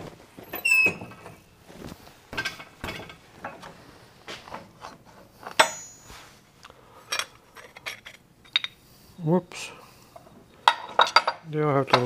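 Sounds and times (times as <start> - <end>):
sharp ringing metal clink: 5.6 - 6.1.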